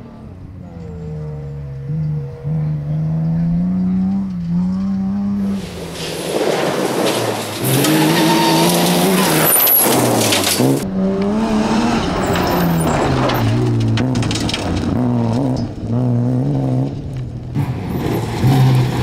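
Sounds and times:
tyres sliding on gravel: 5.4 - 10.8, 11.9 - 15.7.

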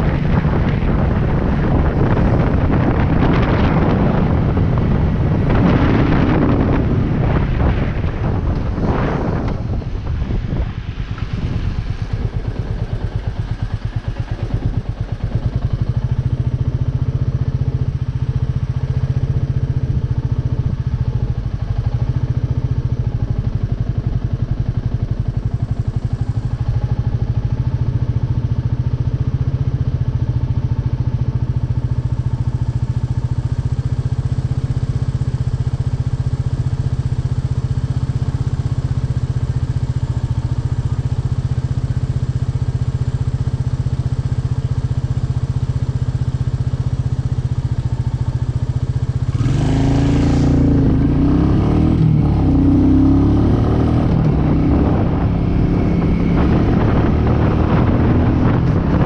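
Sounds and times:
wind noise: 0.0 - 28.8, 47.6 - 59.0
motorcycle engine idling: 0.0 - 59.0.

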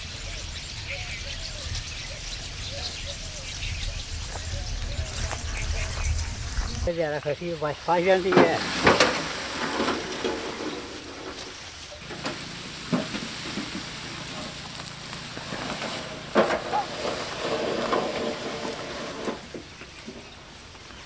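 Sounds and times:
grass stalks rustling and crackling: 4.2 - 21.0
sharp knocks from handcart: 12.0 - 20.4.

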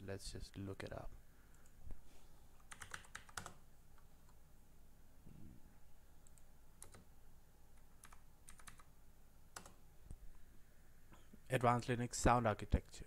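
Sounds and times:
computer keyboard key presses: 2.6 - 3.6, 8.0 - 8.9.

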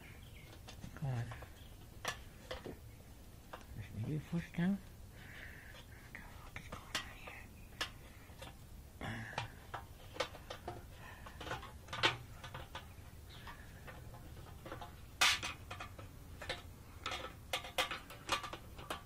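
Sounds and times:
plastic and metal parts clattering: 0.5 - 2.8, 6.7 - 19.0.

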